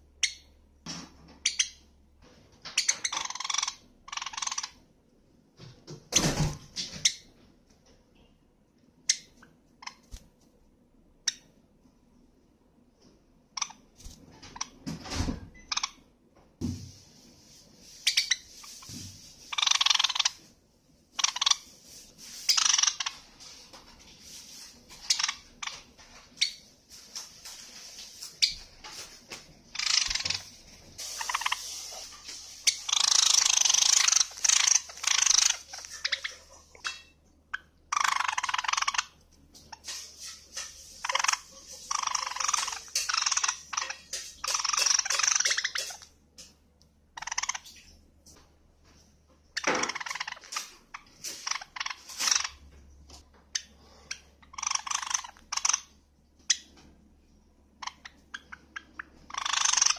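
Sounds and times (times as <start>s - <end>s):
sparrow chattering: 32.7s - 37.0s, 54.1s - 55.9s, 57.8s - 59.9s.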